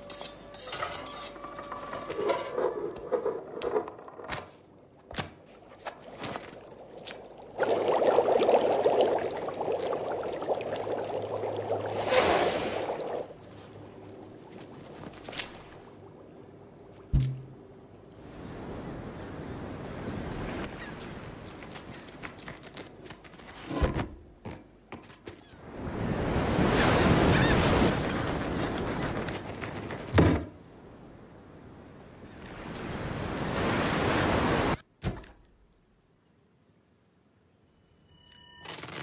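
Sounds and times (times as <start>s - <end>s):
sharp thuds: 17.1s - 17.6s.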